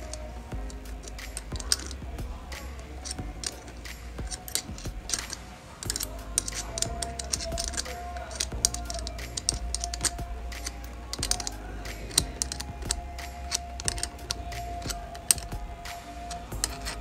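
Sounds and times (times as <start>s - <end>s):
small parts and tools clinking: 0.0s - 17.0s.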